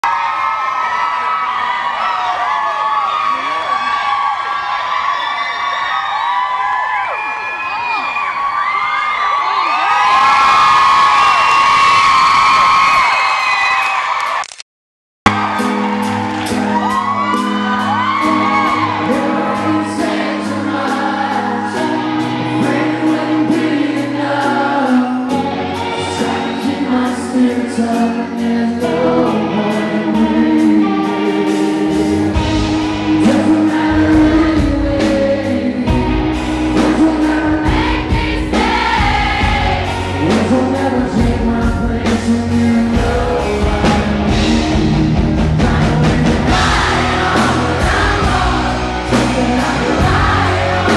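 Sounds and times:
live rock band: 15.3s - 50.9s
male lead vocal: 18.2s - 50.9s.

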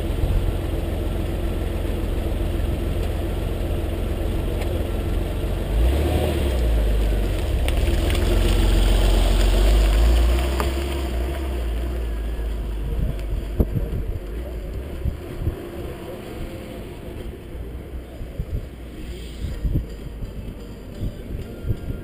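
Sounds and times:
low steady rumble: 0.0s - 22.0s
wind buffeting microphone: 12.7s - 15.9s, 18.1s - 22.0s.

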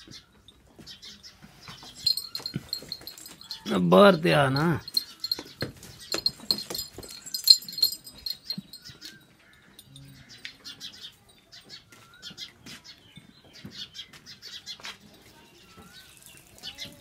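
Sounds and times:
light metallic jingling: 1.8s - 11.7s.

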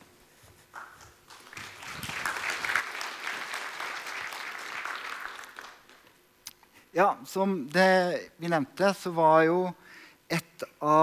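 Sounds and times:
audience applauding: 0.8s - 6.1s.

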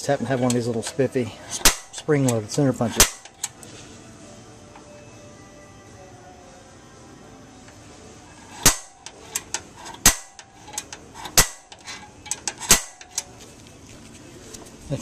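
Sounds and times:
center punch snapping on metal: 1.5s - 3.6s, 8.6s - 13.3s.

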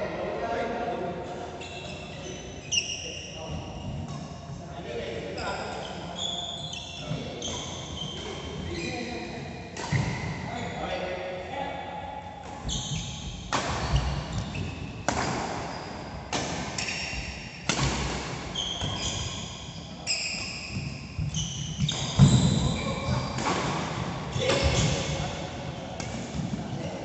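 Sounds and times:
sneakers squeaking on court: 1.6s - 4.2s, 5.4s - 9.2s, 12.6s - 15.0s, 16.8s - 17.4s, 18.5s - 23.5s
racket striking shuttlecock: 15.0s - 15.7s, 17.6s - 19.0s.

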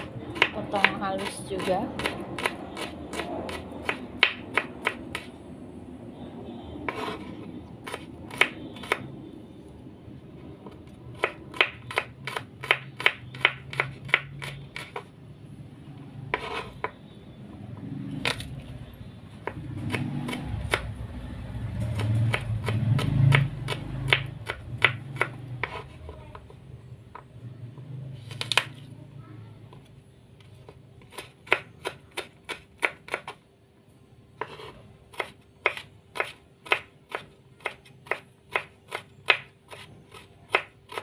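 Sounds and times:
knife chopping on wooden board: 0.0s - 5.3s, 6.9s - 9.1s, 11.1s - 15.1s, 16.3s - 17.0s, 19.4s - 20.9s, 21.8s - 26.5s, 30.6s - 33.4s, 34.4s - 41.0s.

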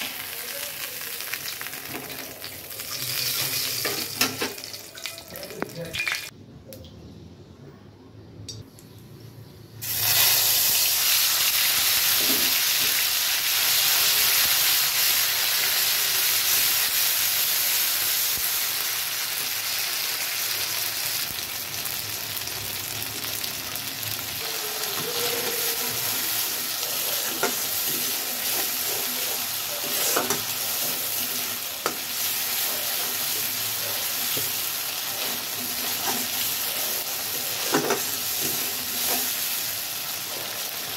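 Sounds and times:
onion sizzling in hot oil: 0.0s - 6.3s, 9.8s - 40.9s
metal spatula scraping pan: 27.2s - 33.3s.

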